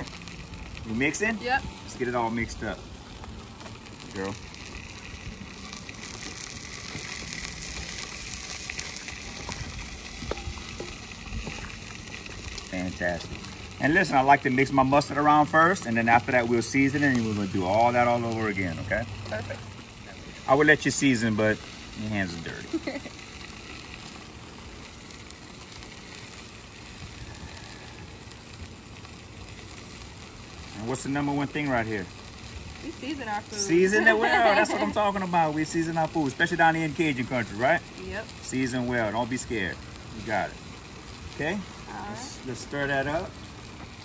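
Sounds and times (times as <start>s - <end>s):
sausage sizzling in a pot: 0.0s - 44.0s.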